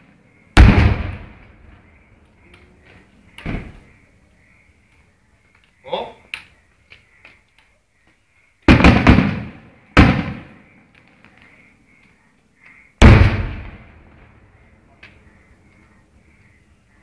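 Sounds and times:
fireworks bangs: 0:00.5 - 0:01.8, 0:08.6 - 0:10.6, 0:13.0 - 0:14.6.

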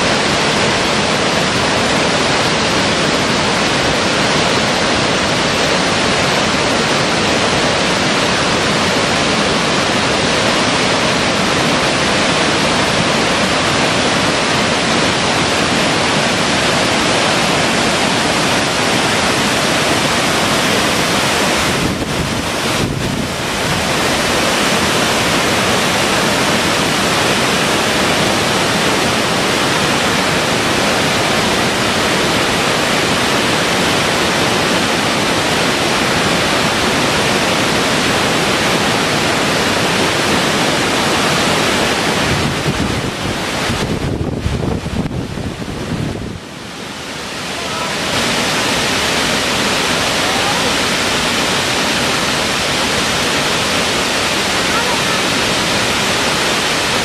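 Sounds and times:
waterfall rushing: 0:00.0 - 0:57.0.

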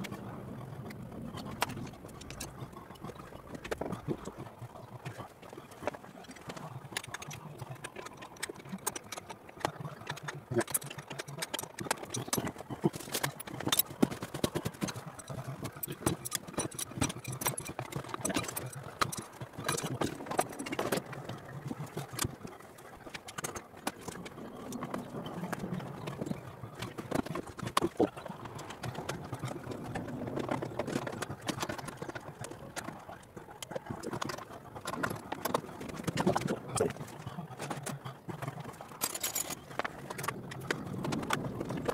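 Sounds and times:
hand tools clinking on metal: 0:39.0 - 0:39.9.

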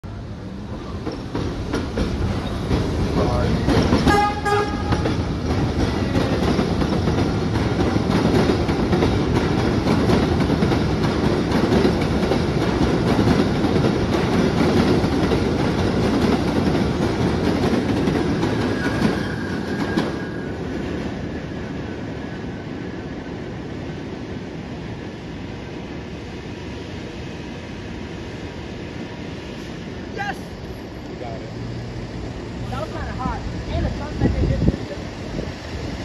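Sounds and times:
train wheels on rails: 0:00.1 - 0:36.0
high wheel squeal: 0:18.7 - 0:20.6.

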